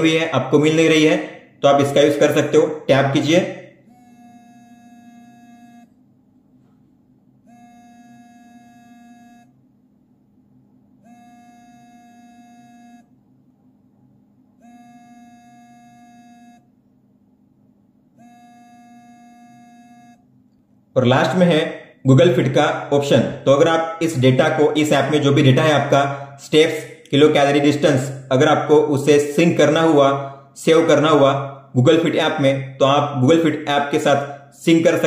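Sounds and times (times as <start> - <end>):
vibration motor buzzing on cardboard: 3.9 - 5.9, 7.5 - 9.5, 11.1 - 13.0, 14.6 - 16.6, 18.2 - 20.2.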